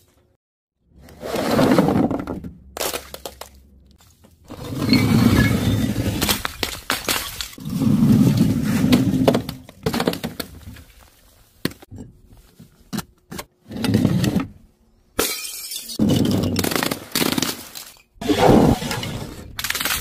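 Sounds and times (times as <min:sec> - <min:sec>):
objects crashing on tiled floor: 0:05.3 - 0:10.5
glass bottle breaking: 0:06.2 - 0:07.6, 0:15.2 - 0:16.7.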